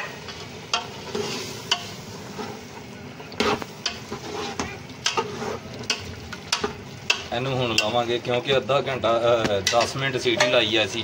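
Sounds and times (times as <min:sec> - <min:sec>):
frying sizzle: 0:00.0 - 0:11.0.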